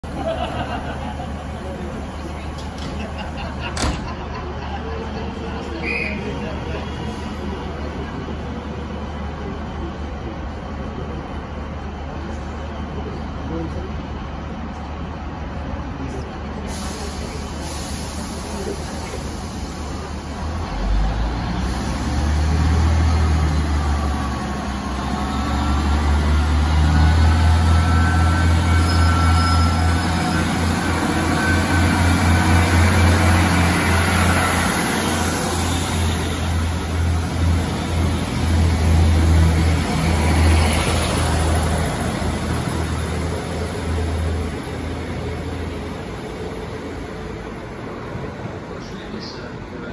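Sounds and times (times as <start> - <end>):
diesel train engines droning: 0.0 - 49.9.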